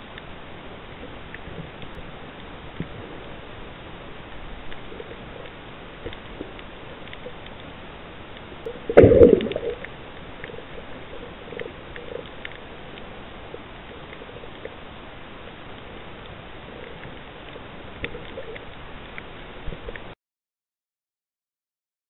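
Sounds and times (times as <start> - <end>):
faint clicks: 4.2 - 14.8, 15.4 - 20.1
underwater hiss: 8.6 - 12.2.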